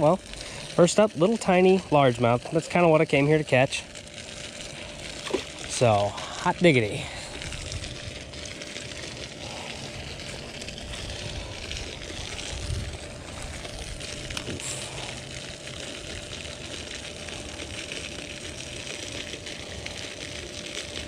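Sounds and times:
outdoor hiss: 0.0 - 3.9, 4.6 - 8.0
flickering low rumble: 4.6 - 20.6.

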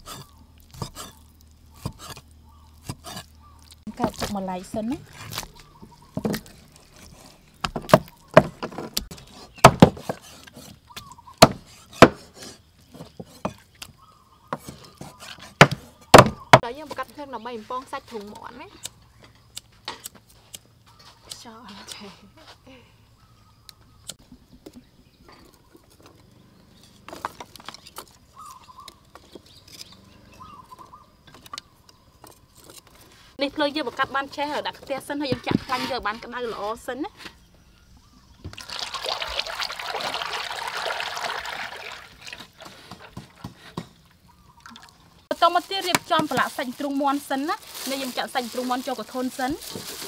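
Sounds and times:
cleavers chopping on wooden boards: 3.9 - 13.6, 14.5 - 16.7, 42.6 - 44.0
sticks knocking and rustling: 45.3 - 50.0.

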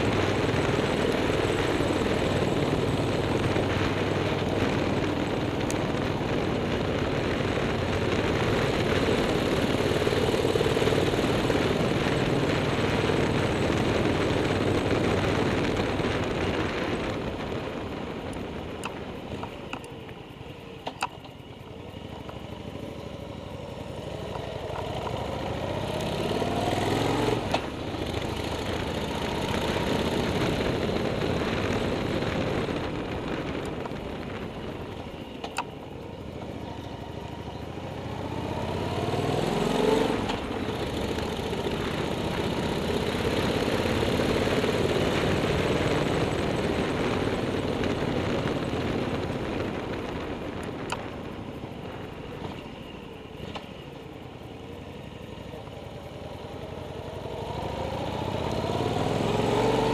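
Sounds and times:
motorcycle engine revving: 22.1 - 35.4, 36.2 - 52.9, 54.5 - 59.9.

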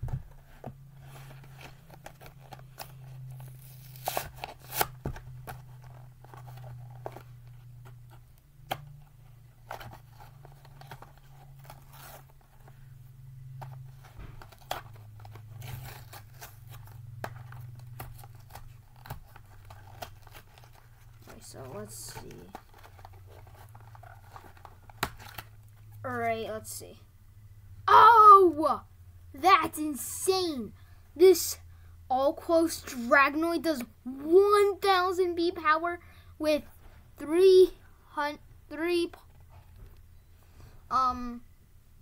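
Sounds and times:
plastic packaging being torn open: 1.8 - 7.3, 14.4 - 21.1.

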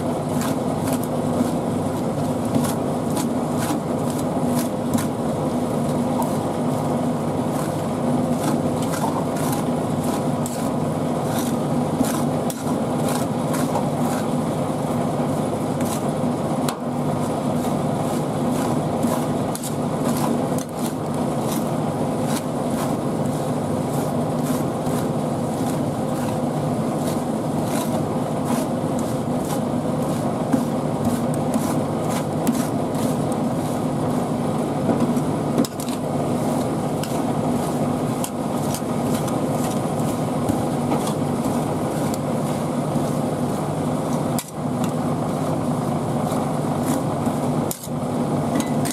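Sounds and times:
metal spatulas chopping and scraping: 2.3 - 5.2, 7.5 - 14.4, 15.8 - 16.1, 17.6 - 26.4, 27.0 - 33.8, 35.0 - 43.2, 46.2 - 48.0, 48.6 - 48.9.

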